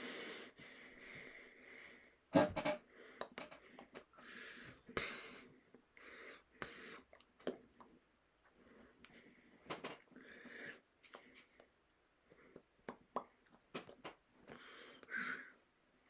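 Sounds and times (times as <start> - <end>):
man breathing heavily: 0.0 - 2.3, 2.9 - 7.1.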